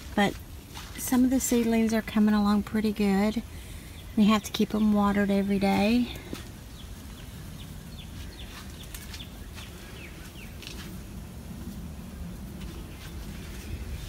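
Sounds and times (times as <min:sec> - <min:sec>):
bird chirping: 0:03.8 - 0:10.8.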